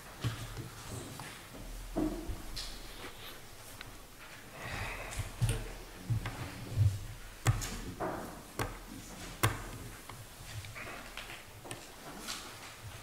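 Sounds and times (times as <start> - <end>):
sharp knocks and clicks: 5.4 - 10.8.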